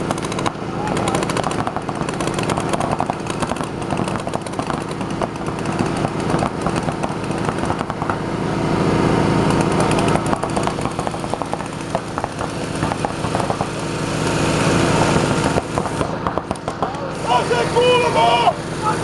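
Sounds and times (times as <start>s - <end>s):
paintball markers firing: 0.0s - 8.2s, 9.5s - 13.8s, 15.2s - 17.0s
steady low hum: 0.0s - 19.0s.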